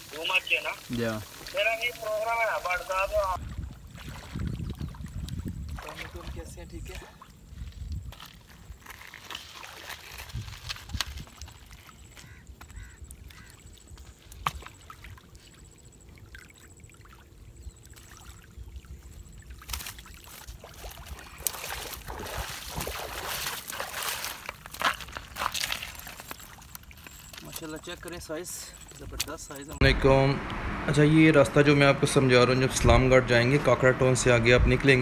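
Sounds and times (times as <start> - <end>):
water sloshing and pouring: 0.0 - 7.7, 8.8 - 12.2, 14.5 - 29.1.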